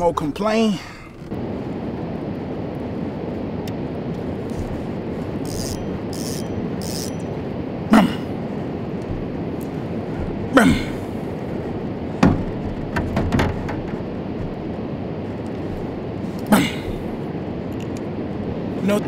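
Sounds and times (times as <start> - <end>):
steady low rumble: 0.0 - 19.0
sharp knocks and bumps: 12.2 - 14.7.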